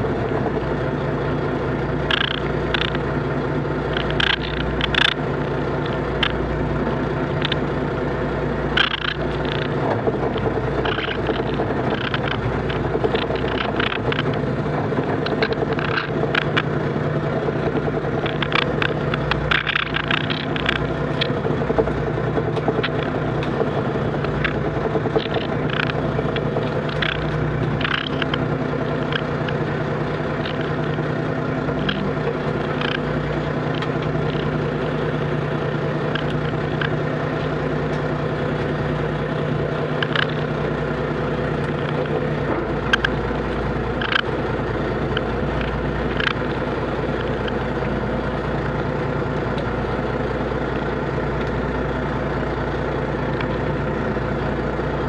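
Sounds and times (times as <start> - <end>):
boat engine and net hauler: 0.0 - 55.0.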